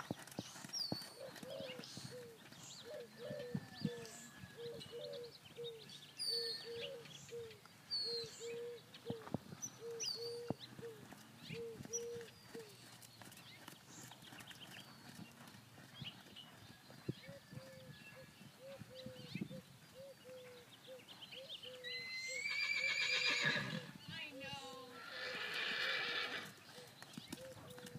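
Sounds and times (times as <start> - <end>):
horse cantering on sand: 0.0 - 2.8, 10.5 - 18.6, 26.4 - 27.9.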